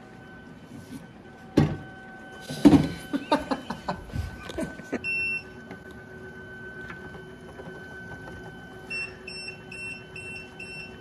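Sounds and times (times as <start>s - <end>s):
curing station electrical hum: 0.0s - 11.0s
lid alarm pinging: 6.4s - 11.0s.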